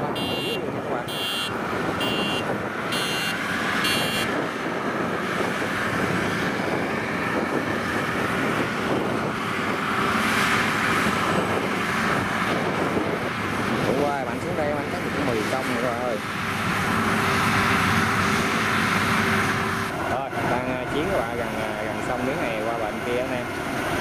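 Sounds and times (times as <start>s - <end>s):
combine harvester running: 0.0s - 24.0s
electronic warning buzzer beeping: 0.2s - 4.3s.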